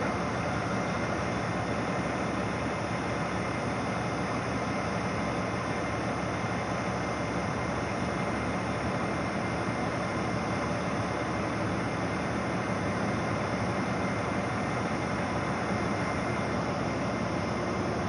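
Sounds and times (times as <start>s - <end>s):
diesel machinery droning: 0.0s - 18.0s.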